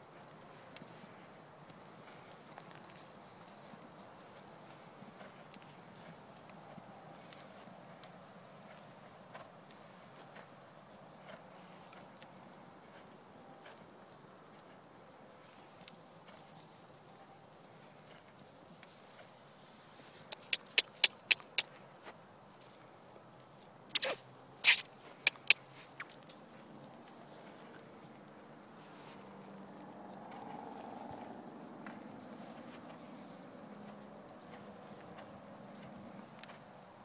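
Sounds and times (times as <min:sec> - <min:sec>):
crickets droning: 0:00.0 - 0:37.0
sharp clicks: 0:20.3 - 0:21.6, 0:23.9 - 0:25.6.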